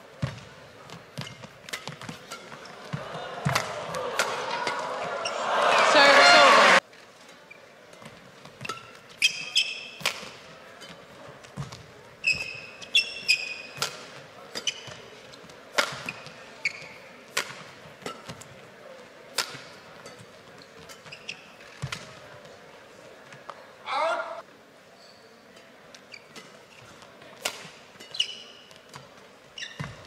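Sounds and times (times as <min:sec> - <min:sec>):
shoes squeaking on floor: 0:00.9 - 0:03.0, 0:07.5 - 0:10.0, 0:11.6 - 0:13.8, 0:14.6 - 0:17.2, 0:20.5 - 0:22.0, 0:25.0 - 0:25.4, 0:26.0 - 0:27.0, 0:28.0 - 0:30.0
rackets striking shuttlecock: 0:01.2 - 0:04.8, 0:08.6 - 0:15.1, 0:15.7 - 0:18.5, 0:19.3 - 0:22.1, 0:27.4 - 0:29.1.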